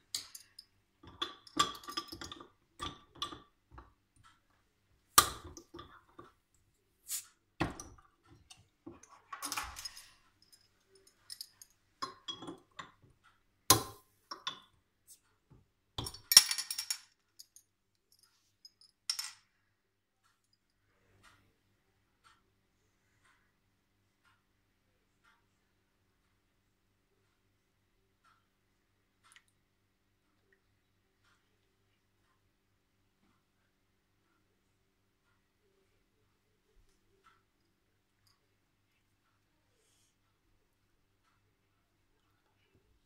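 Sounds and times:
caps dropping on counter: 16.0 - 17.1, 19.1 - 19.4.

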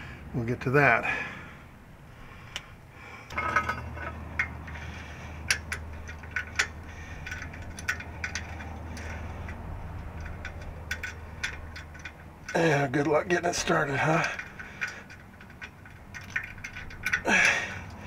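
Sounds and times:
metallic clicks of bolt: 5.4 - 18.0.

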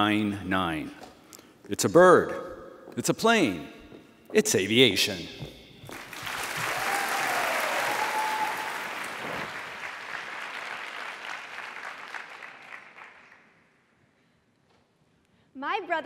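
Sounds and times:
audience applauding: 5.9 - 13.5.

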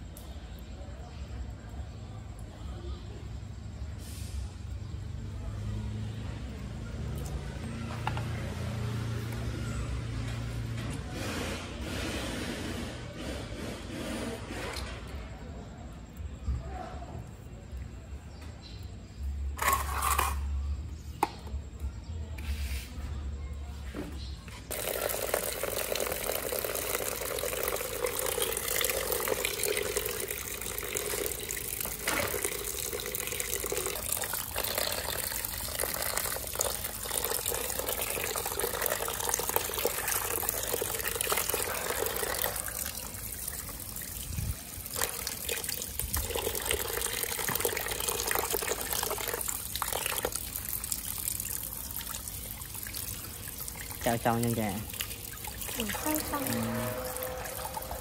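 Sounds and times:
tap water running into sink: 24.7 - 58.0.

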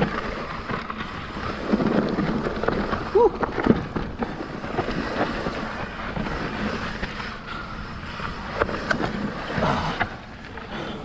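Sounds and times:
bike knocks and rattles: 0.0 - 6.5
tyres on dirt and rock: 0.0 - 11.0.

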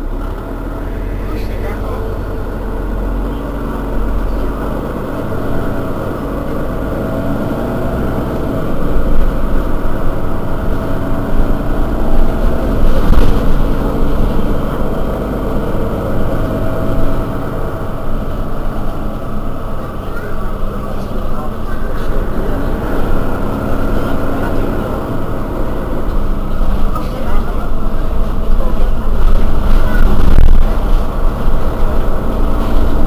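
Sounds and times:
bus engine idling: 0.0 - 33.0.

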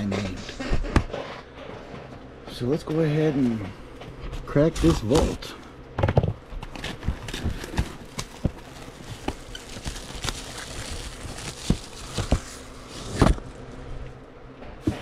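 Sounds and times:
packaging clicks and knocks: 6.1 - 10.6.

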